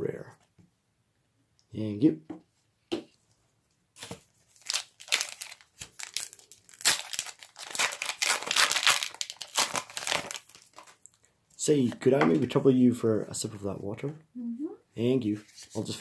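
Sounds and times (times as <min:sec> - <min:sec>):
foil wrapper tearing and crinkling: 0:04.0 - 0:11.1.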